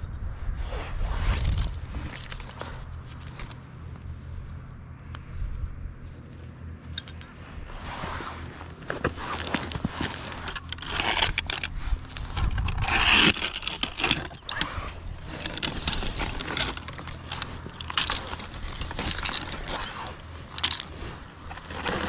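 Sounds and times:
scraping litter on concrete: 7.7 - 22.0.

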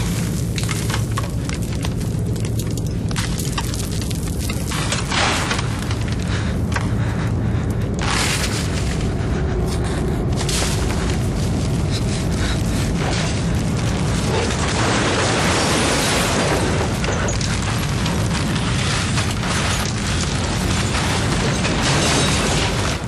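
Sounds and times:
deep rumbling noise: 0.0 - 23.0.

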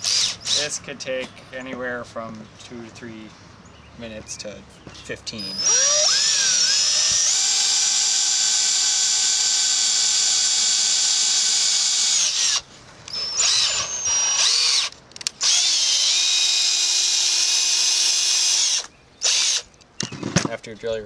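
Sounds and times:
cordless drill whining: 0.0 - 0.8, 5.4 - 19.7.

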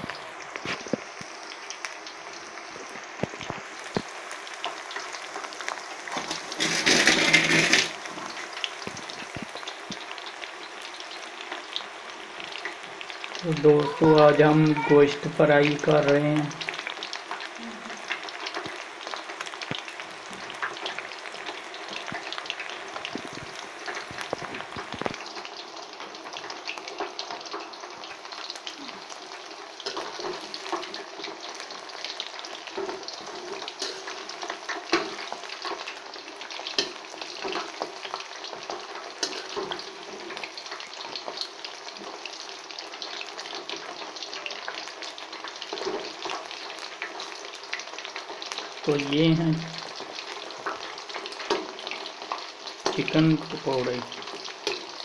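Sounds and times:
deep-frying sizzle: 0.0 - 55.0
spatula scraping pan: 6.2 - 8.4.

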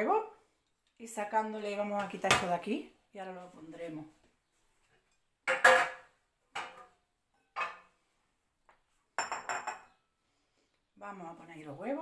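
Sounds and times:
dishes clattering: 5.4 - 8.0, 9.2 - 10.0.

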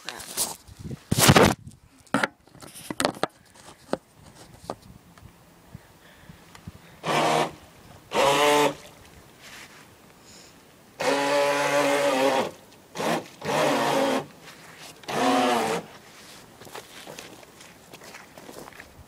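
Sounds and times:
small electric motor whining: 7.0 - 8.9, 11.0 - 14.3, 15.0 - 15.9.

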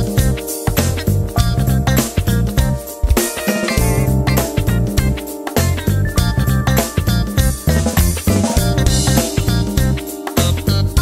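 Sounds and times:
drum kit playing: 0.0 - 11.0
funk backing track: 0.0 - 11.0.

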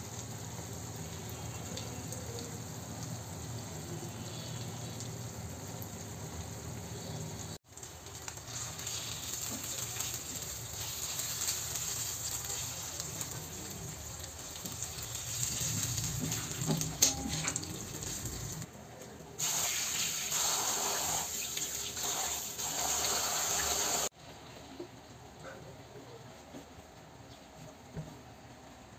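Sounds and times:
curry simmering in a pan: 0.0 - 17.0
hands washing leaves: 7.7 - 18.7.

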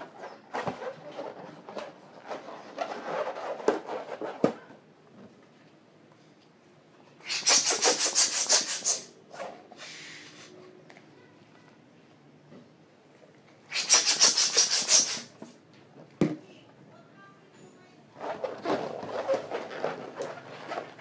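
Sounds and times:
balloons rubbing together: 0.6 - 4.4, 7.3 - 9.1, 13.7 - 15.3, 18.2 - 21.0.

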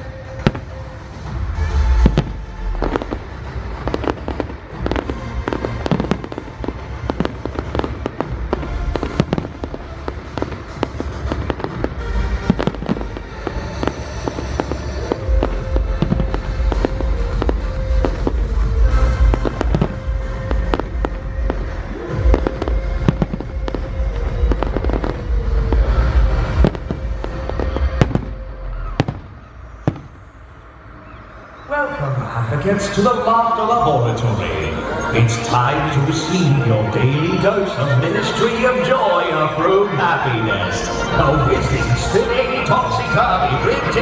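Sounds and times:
music with heavy bass: 0.0 - 30.0
fireworks bangs and crackles: 0.0 - 31.2, 32.6 - 44.0.

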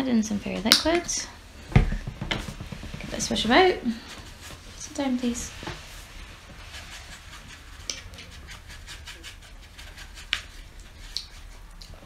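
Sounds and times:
paintbrush swishing in paint: 2.8 - 12.0.

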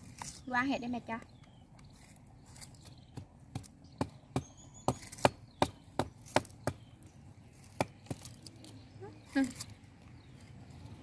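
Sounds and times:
knife chopping food: 2.8 - 6.9.

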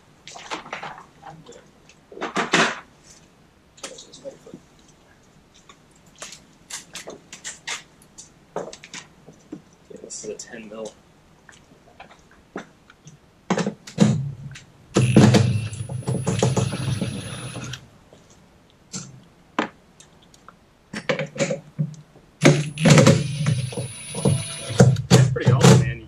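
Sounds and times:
cordless drill motor whining: 15.0 - 17.8, 22.4 - 25.0.

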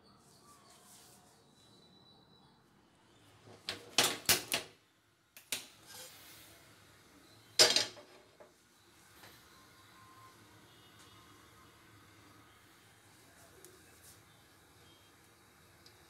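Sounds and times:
pan clanking on metal grate: 7.6 - 8.2
cookware clattering: 7.6 - 8.3.

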